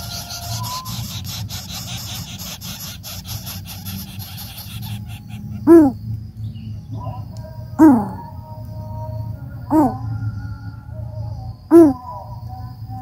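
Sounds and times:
bird call: 0:00.0 - 0:06.0, 0:09.7 - 0:10.0, 0:11.7 - 0:12.1.

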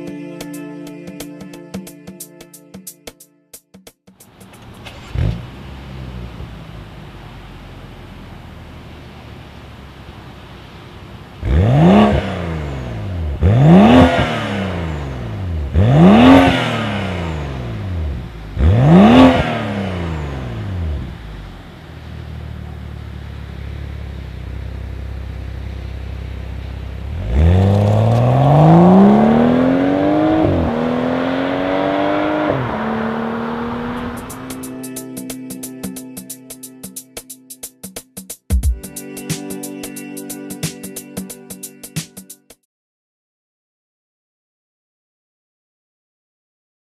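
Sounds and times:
car engine idling: 0:04.2 - 0:13.6, 0:16.9 - 0:19.0, 0:19.6 - 0:31.8, 0:32.4 - 0:35.4
car accelerating with upshifts: 0:04.3 - 0:35.7
car engine revving: 0:04.4 - 0:35.7.

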